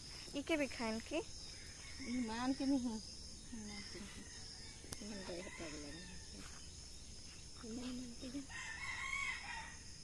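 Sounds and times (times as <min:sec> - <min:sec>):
high-pitched insect drone: 0:00.0 - 0:10.0
rooster crowing: 0:08.5 - 0:10.0.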